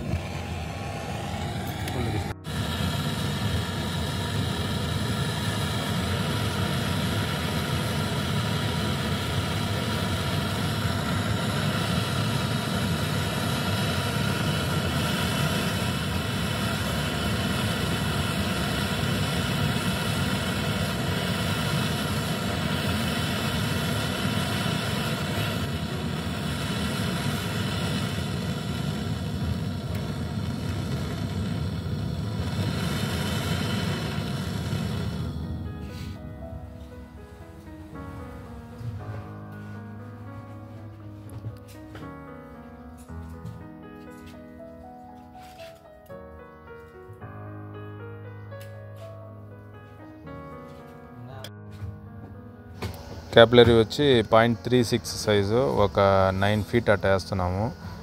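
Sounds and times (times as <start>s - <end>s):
gas torch burning: 0.0s - 39.4s, 52.7s - 58.0s.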